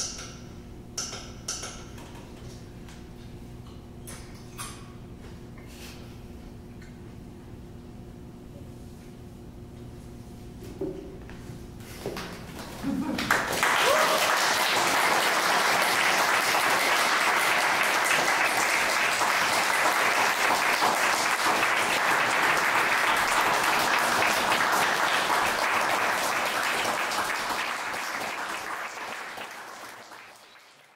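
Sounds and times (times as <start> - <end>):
audience applauding: 12.6 - 30.9.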